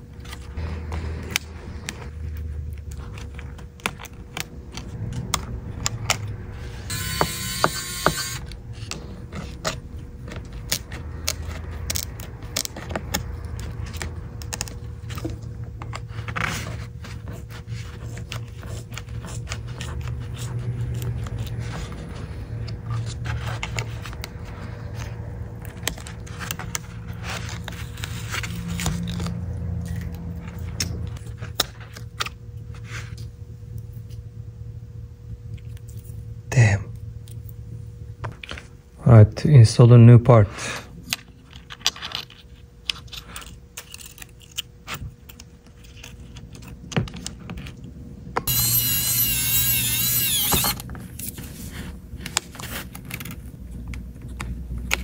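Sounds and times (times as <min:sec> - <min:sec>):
steady low hum: 0:00.0 - 0:55.0
small tools clicking and scraping: 0:41.5 - 0:46.8.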